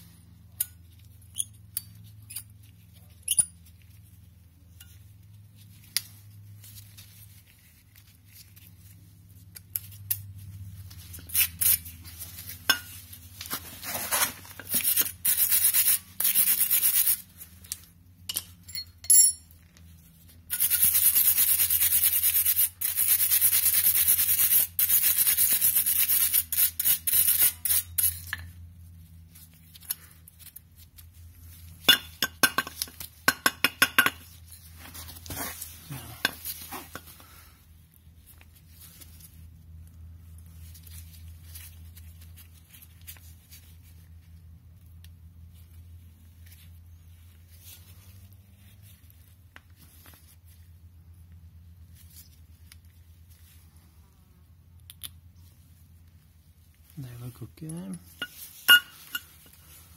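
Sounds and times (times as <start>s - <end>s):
wire brush scrubbing metal: 13.8s - 17.2s, 20.5s - 28.2s
metal clinks and knocks: 18.2s - 19.8s, 31.8s - 37.2s, 58.1s - 59.6s.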